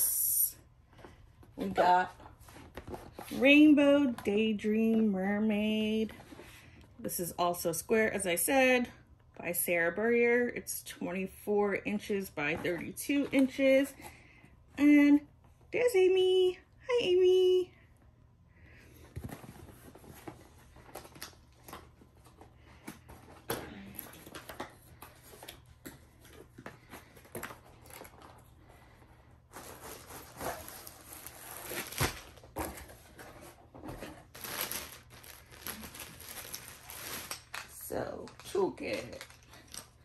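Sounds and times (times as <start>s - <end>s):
plastic and cardboard crinkling: 19.1s - 40.0s.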